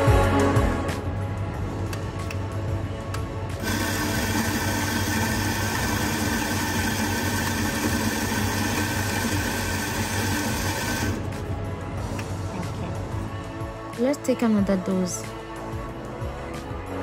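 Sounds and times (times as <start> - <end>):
electric coffee grinder running: 3.6 - 11.4.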